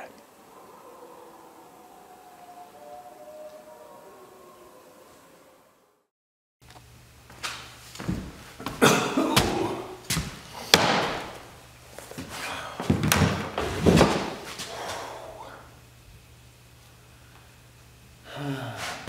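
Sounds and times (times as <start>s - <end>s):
knocks and thumps in bare room: 8.0s - 11.6s, 12.2s - 15.1s.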